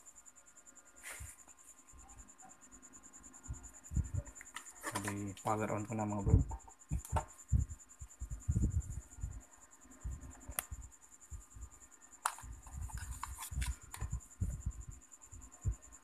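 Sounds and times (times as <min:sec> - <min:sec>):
handling rubbing and knocks: 0:04.1 - 0:07.3.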